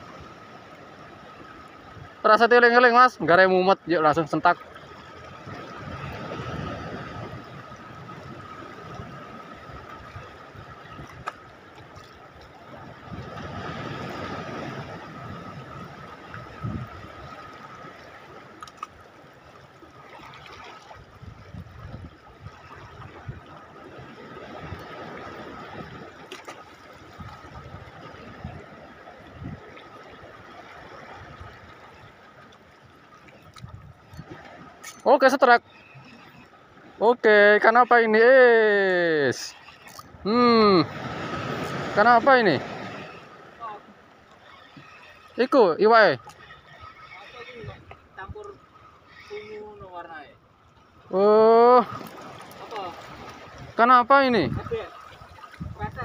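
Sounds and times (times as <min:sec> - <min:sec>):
seawater lapping: 0:00.0 - 0:56.0
wind noise on microphone: 0:13.0 - 0:17.2, 0:21.1 - 0:23.4, 0:27.1 - 0:29.6, 0:33.6 - 0:34.6, 0:54.4 - 0:56.0.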